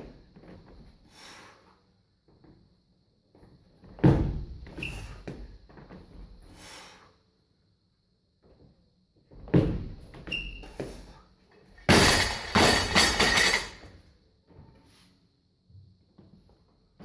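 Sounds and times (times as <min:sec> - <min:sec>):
barbell crashing and bouncing on floor: 0:11.8 - 0:13.9
barbell plates knocking and rattling: 0:11.9 - 0:13.8.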